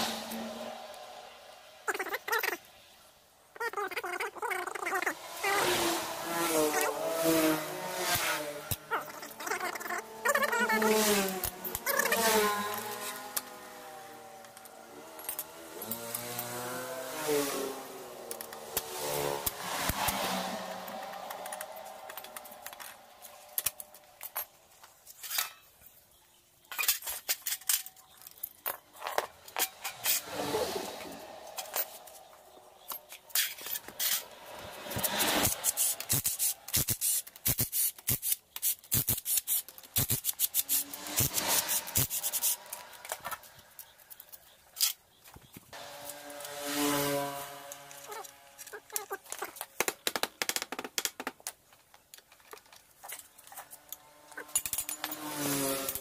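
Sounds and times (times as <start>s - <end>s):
metal hand tools clicking and clinking: 31.5s - 45.1s, 51.9s - 56.0s.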